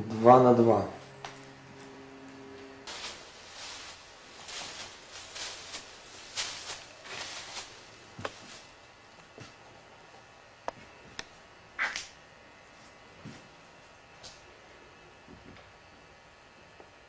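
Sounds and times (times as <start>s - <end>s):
footsteps scuffing on gritty floor: 2.9s - 8.8s.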